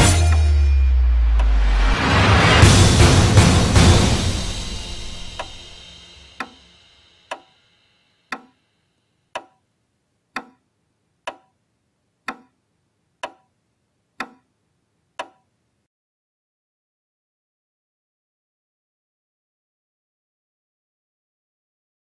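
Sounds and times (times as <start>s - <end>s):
low drum hit: 0.0s - 6.3s
clock ticking: 6.4s - 6.6s, 7.3s - 7.5s, 8.3s - 8.6s, 9.3s - 9.7s, 10.3s - 11.6s, 12.2s - 12.6s, 13.2s - 13.6s, 14.2s - 14.5s, 15.2s - 15.5s.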